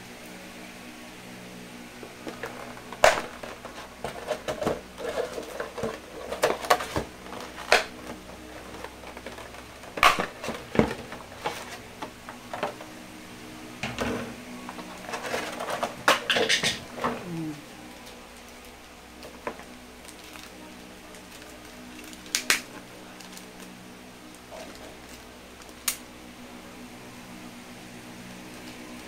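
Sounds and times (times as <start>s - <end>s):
plastic packaging crackling: 2.1s - 13.0s, 14.6s - 26.0s.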